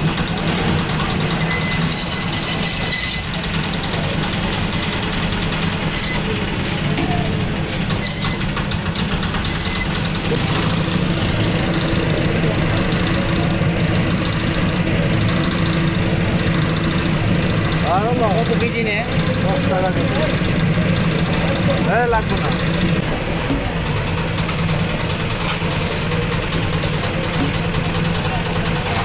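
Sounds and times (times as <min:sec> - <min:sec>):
band saw motor hum: 0:00.0 - 0:29.0
saw blade slicing fish: 0:01.3 - 0:03.3, 0:05.8 - 0:06.3, 0:09.4 - 0:09.9.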